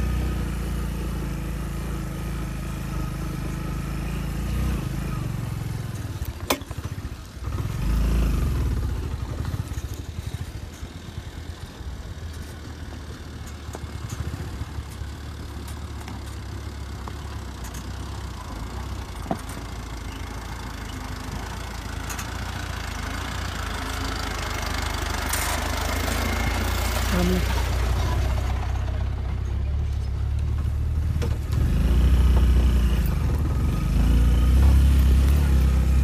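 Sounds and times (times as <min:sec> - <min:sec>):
approaching jeep engine: 0:00.0 - 0:36.0
motorcycle engine running: 0:00.0 - 0:36.0
motorcycle knocks and rattles: 0:05.9 - 0:08.0, 0:12.2 - 0:20.0, 0:27.7 - 0:36.0.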